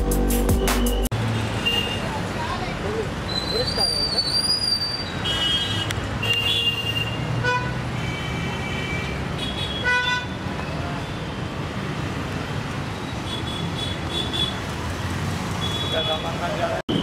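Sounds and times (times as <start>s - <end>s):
traffic engines rumbling: 0.0s - 17.0s
vehicle horns honking: 0.6s - 2.1s, 5.2s - 10.4s, 15.6s - 17.0s.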